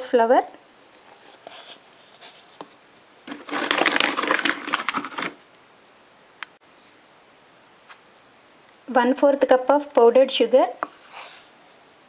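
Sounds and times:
dense crinkling rustle: 1.0 - 5.4.

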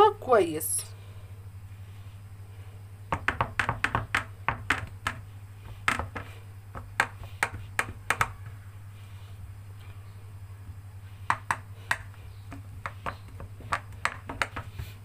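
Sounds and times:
hand patting dough in metal tray: 3.1 - 8.7, 10.7 - 15.0.

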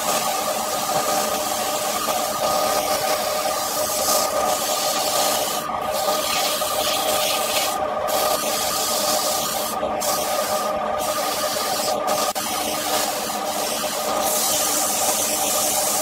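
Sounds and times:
wood lathe humming: 0.0 - 16.0
sandpaper rubbing hiss: 11.3 - 16.0.

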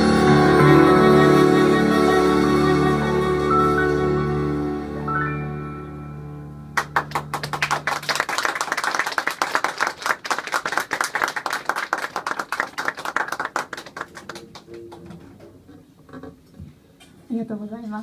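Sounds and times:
low violin and contrabass note: 0.0 - 6.0
audience clapping: 6.8 - 15.4.

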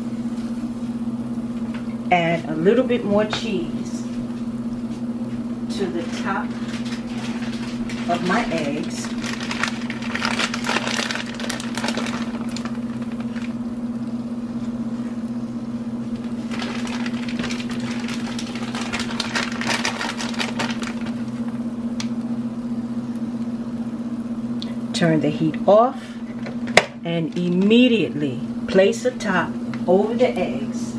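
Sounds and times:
steady low hum: 0.0 - 30.9
cheese crackling in skillet: 6.0 - 22.4.

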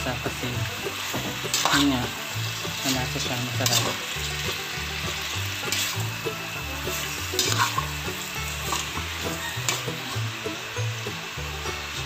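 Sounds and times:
background music bass line: 0.0 - 12.0
meat sizzling in a pot: 0.0 - 12.0
metal spoon scraping a pot: 0.9 - 10.2.

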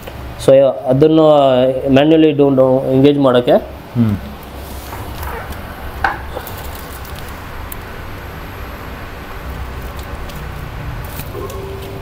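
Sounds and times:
machine humming: 3.6 - 12.0.

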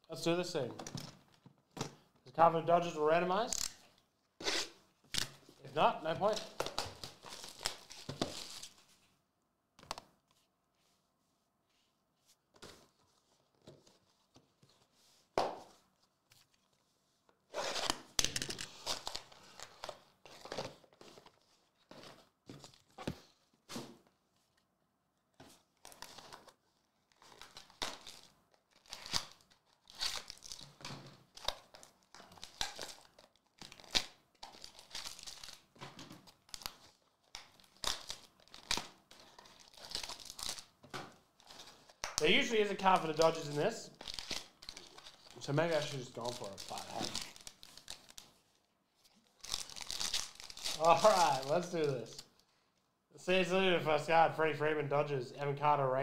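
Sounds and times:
plastic wrap tearing and crinkling: 25.8 - 40.7, 41.4 - 52.4.

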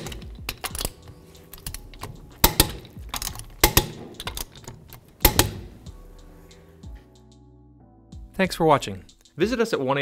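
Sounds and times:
torque wrench clicking: 0.0 - 5.7.

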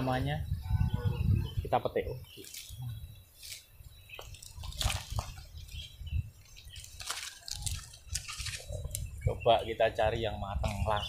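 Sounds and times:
leaves and twigs rustling: 2.2 - 11.0.

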